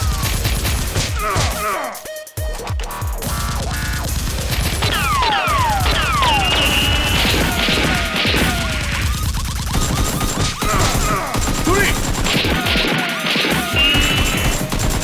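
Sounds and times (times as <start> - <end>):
background music: 0.0 - 15.0
gunfire volleys: 3.9 - 15.0
whistling ricochet whines: 5.0 - 9.2.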